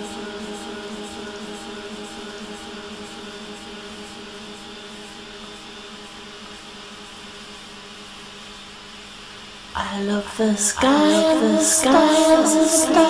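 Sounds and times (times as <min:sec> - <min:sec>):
person singing: 0:00.0 - 0:04.6, 0:09.8 - 0:13.0
steady hiss: 0:00.0 - 0:13.0.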